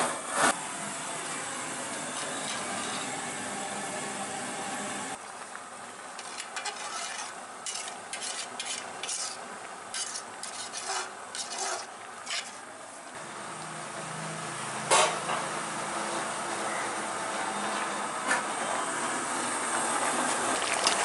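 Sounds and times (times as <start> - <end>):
curry bubbling: 5.2 - 12.7, 20.2 - 21.0
metal spoon scraping a pot: 6.2 - 12.7.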